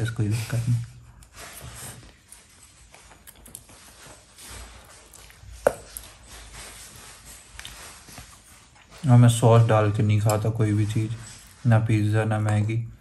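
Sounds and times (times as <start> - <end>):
chewing: 1.2 - 9.2.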